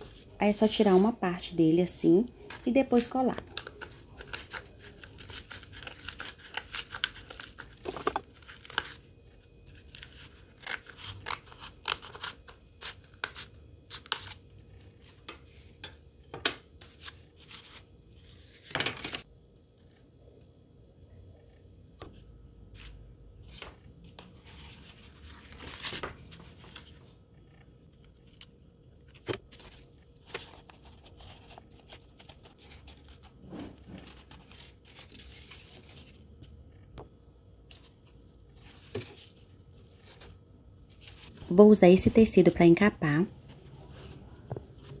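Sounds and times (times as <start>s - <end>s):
cardboard rustling: 29.1s - 36.2s.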